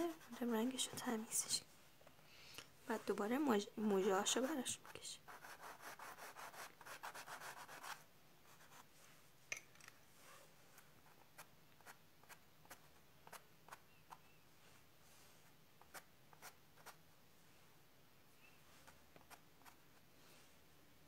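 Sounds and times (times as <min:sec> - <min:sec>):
pencil scratching on paper: 0:00.0 - 0:01.2, 0:04.2 - 0:08.9, 0:15.8 - 0:17.0.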